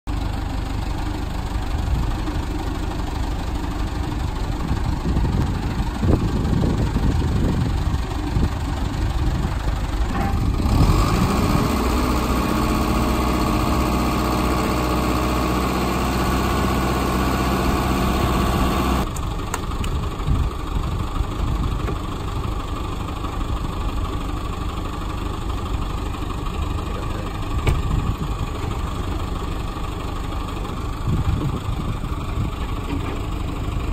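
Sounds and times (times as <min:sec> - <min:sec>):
truck engine running: 0:00.1 - 0:33.9
metal clanks: 0:10.0 - 0:10.6.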